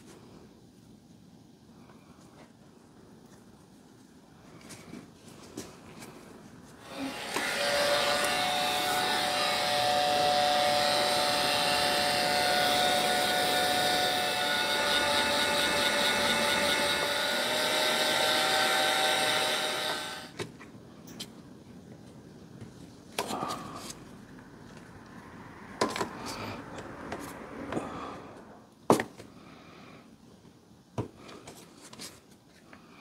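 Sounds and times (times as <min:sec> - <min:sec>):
heat gun whining: 0:06.8 - 0:20.4.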